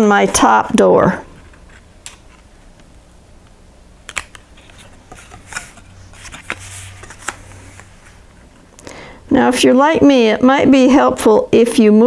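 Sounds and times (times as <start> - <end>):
paper rustling: 4.2 - 8.4.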